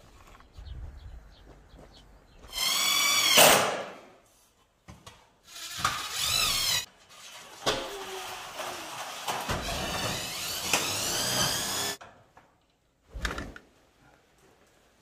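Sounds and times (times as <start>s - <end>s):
cordless drill whining: 5.5s - 6.9s, 9.6s - 12.0s.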